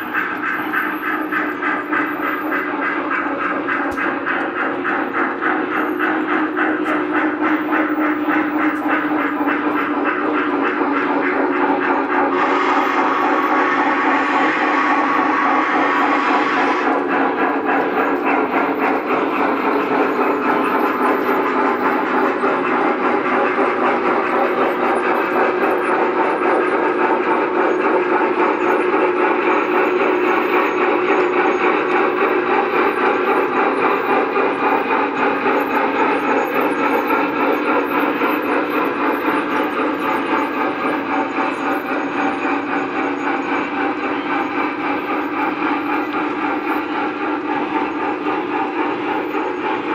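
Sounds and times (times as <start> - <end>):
model trains rolling rumble: 0.0 - 49.9
fast wheel clatter: 16.9 - 49.9.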